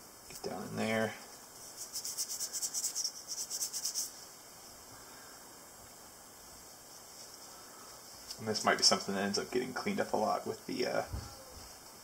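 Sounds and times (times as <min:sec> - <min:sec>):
toothbrush scrubbing a knife: 0:01.6 - 0:04.2.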